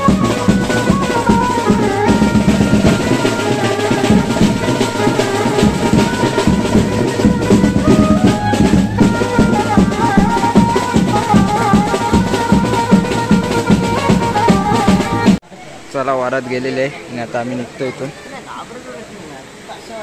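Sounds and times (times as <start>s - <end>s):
banjo band playing: 0.0s - 15.4s
electronic keyboard melody: 0.0s - 15.4s
marching drums beaten with sticks: 0.0s - 15.4s.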